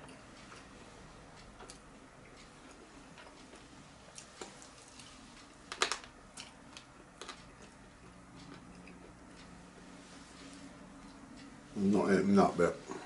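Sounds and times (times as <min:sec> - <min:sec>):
chewing crunches and clicks: 0:05.7 - 0:09.5.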